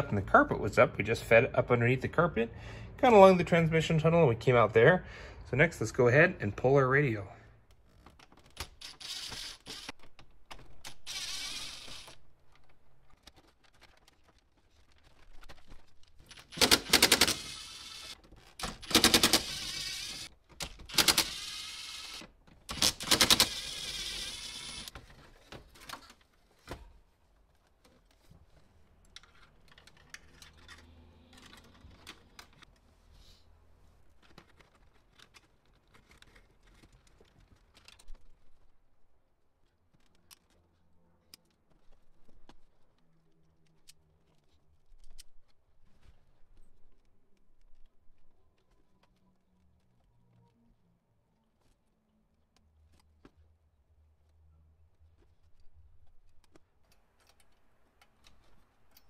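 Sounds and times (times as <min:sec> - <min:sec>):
clicks and rattles of wiring: 0:07.6 - 0:11.1, 0:11.7 - 0:19.5, 0:22.0 - 0:33.0, 0:34.0 - 0:38.9, 0:39.5 - 0:50.6, 0:55.0 - 0:59.0.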